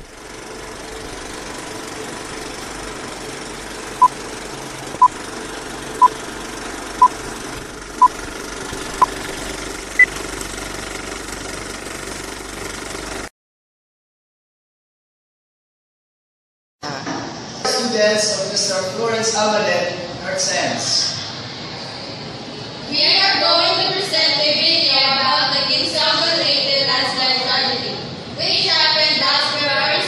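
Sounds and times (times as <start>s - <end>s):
film projector rattle: 0.0s - 13.3s.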